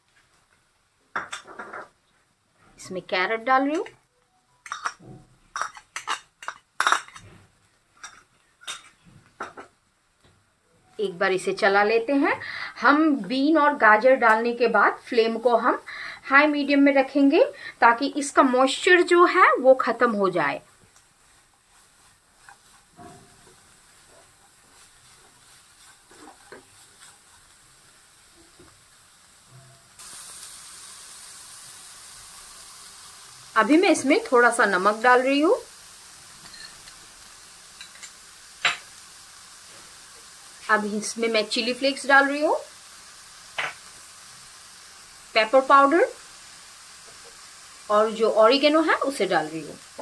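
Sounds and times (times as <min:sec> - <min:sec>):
vegetables sizzling in oil: 0:00.0 - 0:10.3, 0:10.9 - 0:50.0
spatula scraping pan: 0:21.3 - 0:27.4.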